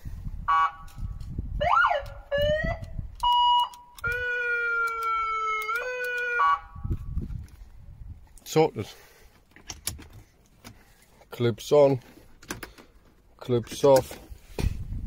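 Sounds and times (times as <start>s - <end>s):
electronic siren tones: 1.6s - 7.0s.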